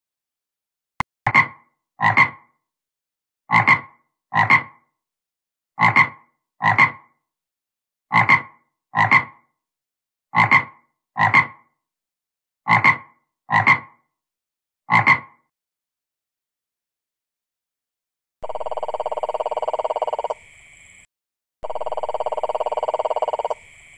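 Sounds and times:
frog croaking: 0:01.3 - 0:02.6, 0:03.5 - 0:04.9, 0:05.8 - 0:07.2, 0:08.1 - 0:09.5, 0:10.3 - 0:11.7, 0:12.7 - 0:14.1, 0:14.9 - 0:15.5, 0:18.4 - 0:23.9.

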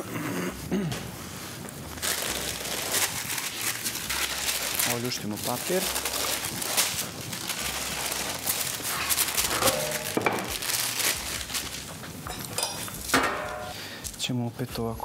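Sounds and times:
baking paper crinkling: 0:01.0 - 0:13.7
kitchenware clinking: 0:09.4 - 0:10.6, 0:12.3 - 0:13.8.

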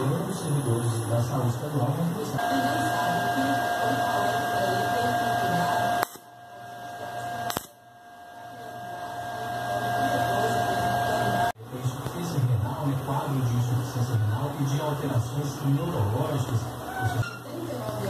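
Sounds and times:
welding arc buzzing: 0:02.4 - 0:11.6
sharp click: 0:06.0 - 0:06.3, 0:07.5 - 0:07.8.

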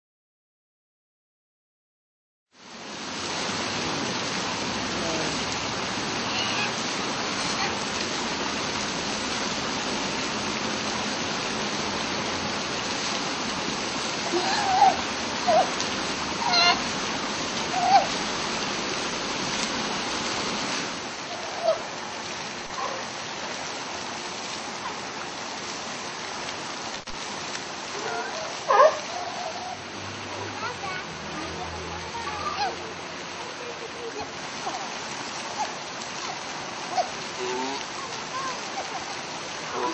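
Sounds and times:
running water: 0:02.5 - 0:39.9
sea lion calls: 0:06.2 - 0:06.8, 0:14.2 - 0:15.8, 0:16.4 - 0:16.9, 0:17.6 - 0:18.2, 0:21.2 - 0:21.9, 0:27.9 - 0:29.8, 0:34.2 - 0:39.9.

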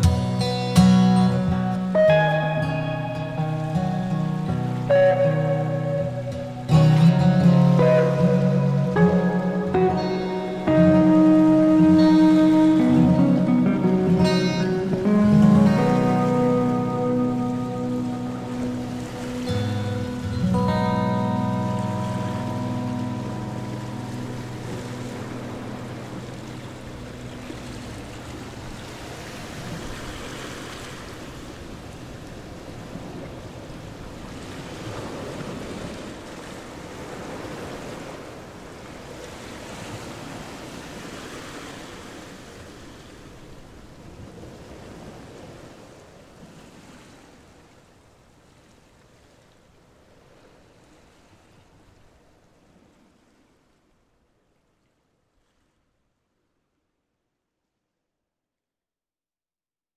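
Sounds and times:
background music: 0:00.0 - 0:28.4.

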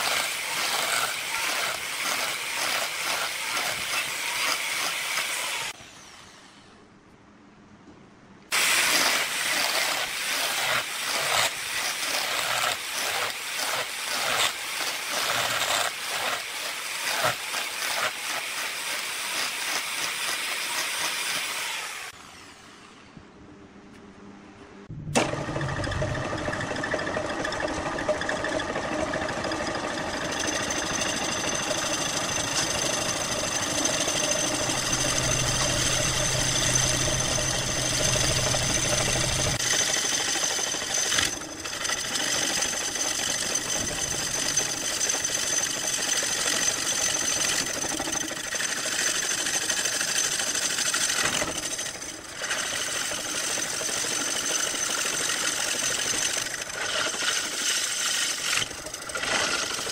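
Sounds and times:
cutter scraping wood: 0:00.0 - 0:06.7, 0:08.5 - 0:23.0, 0:26.8 - 0:59.9
wood chips spraying: 0:08.5 - 0:19.8
lathe motor whine: 0:25.2 - 0:39.6.

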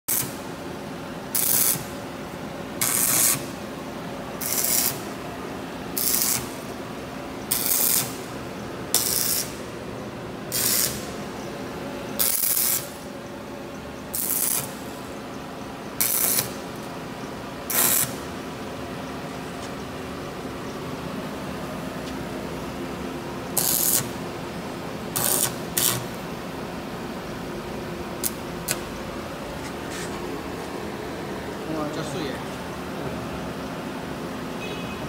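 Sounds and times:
arc welder crackling: 0:00.1 - 0:00.6, 0:01.2 - 0:11.5, 0:12.2 - 0:13.1, 0:14.1 - 0:15.2, 0:15.9 - 0:18.4, 0:23.4 - 0:24.4, 0:25.0 - 0:27.0, 0:27.8 - 0:31.0
steady low hum: 0:00.1 - 0:35.0.

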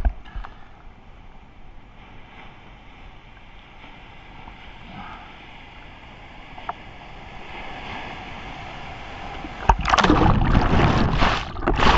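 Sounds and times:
faint wind: 0:00.0 - 0:11.9
water lapping: 0:02.0 - 0:11.9
wave crashing rush of water: 0:04.2 - 0:11.9.

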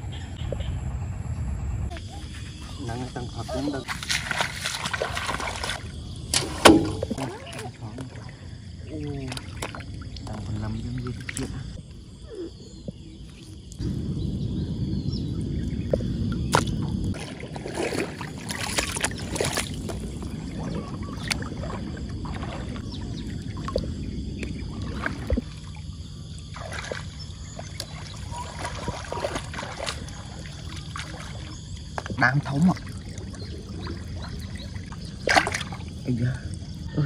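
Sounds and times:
low rumble: 0:00.0 - 0:03.4, 0:13.8 - 0:26.3
water sloshing and splashing: 0:02.0 - 0:11.9, 0:15.8 - 0:36.9.

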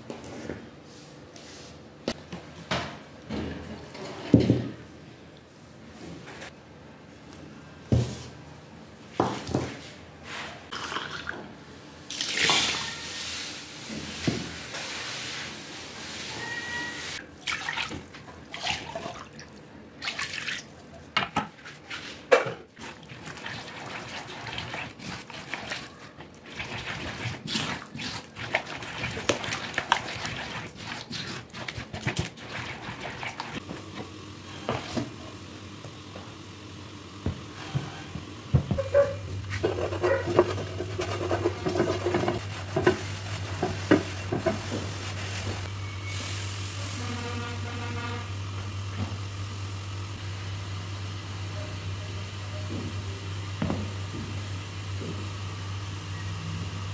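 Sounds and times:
batter sloshing and stirring: 0:17.4 - 0:35.4, 0:38.6 - 0:45.7
spoon stirring in plastic container: 0:22.8 - 0:33.6, 0:39.0 - 0:45.2.

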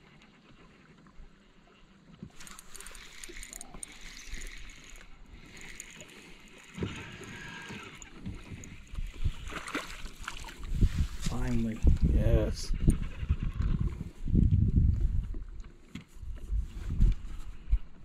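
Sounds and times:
fishing reel cranking: 0:02.3 - 0:09.3
fish splashing: 0:02.3 - 0:10.8.

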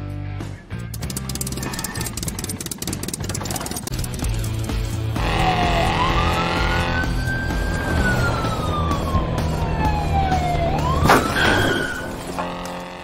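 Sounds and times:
police siren wailing: 0:05.2 - 0:13.0.

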